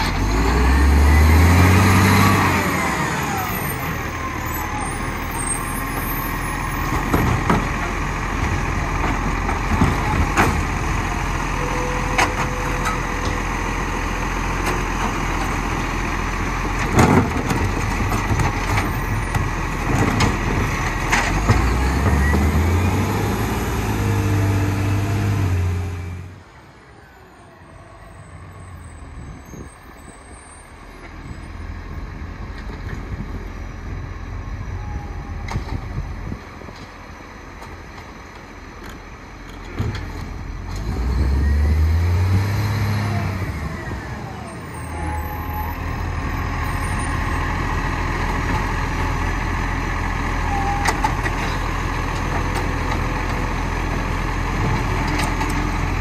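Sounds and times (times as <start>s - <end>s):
garbage truck engine revving: 0.0s - 26.3s, 40.5s - 56.0s.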